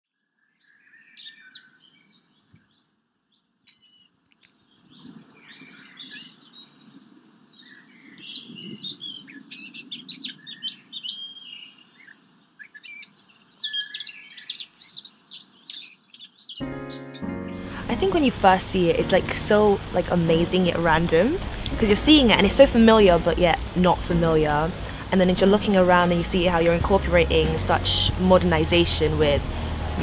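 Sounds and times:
songbirds chirping: 0.2s - 30.0s
low background rumble: 17.6s - 30.0s.

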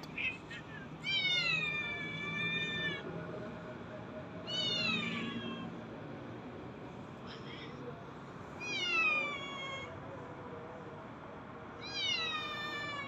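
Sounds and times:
cat meowing: 0.2s - 3.0s, 4.5s - 5.7s, 8.6s - 9.9s, 11.8s - 13.0s.

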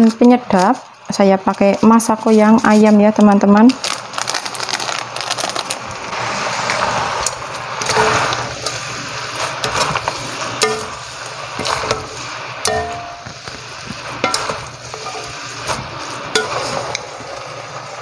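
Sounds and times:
noodles sizzling in a wok: 0.0s - 18.0s
utensils knocking on pan: 10.6s - 11.0s, 11.6s - 13.6s, 14.2s - 15.3s, 16.3s - 16.6s.

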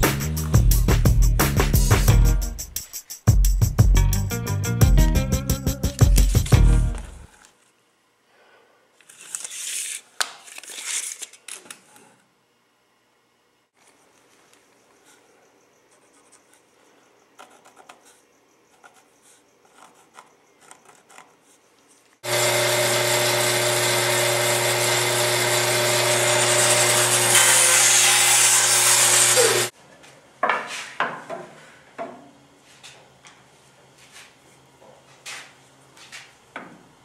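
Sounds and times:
woodworking power tool running: 22.2s - 29.7s.

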